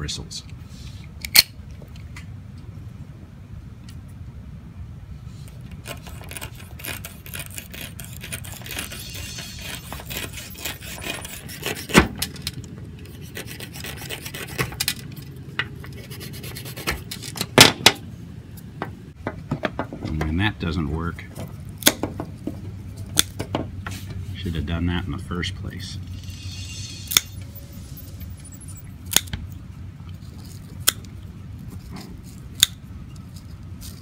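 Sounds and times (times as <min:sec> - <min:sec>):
knife sawing through bristles: 0:05.8 - 0:12.2, 0:13.0 - 0:15.0, 0:15.9 - 0:17.2.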